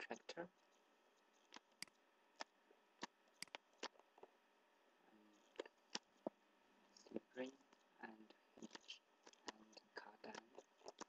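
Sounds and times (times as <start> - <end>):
computer mouse clicks: 1.3 - 4.0, 5.6 - 6.3, 8.6 - 11.0.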